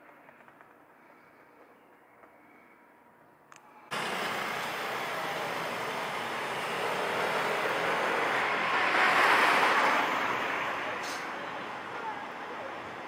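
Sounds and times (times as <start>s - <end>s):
car passing close: 3.9s - 13.0s
passing traffic rush: 3.9s - 13.0s.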